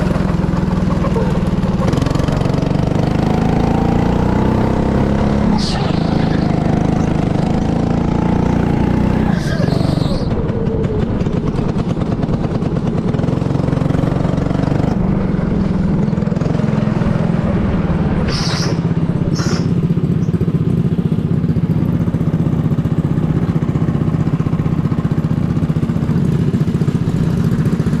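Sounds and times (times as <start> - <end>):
go-kart engine running: 0.0 - 28.0
short high squeaks: 18.3 - 19.9.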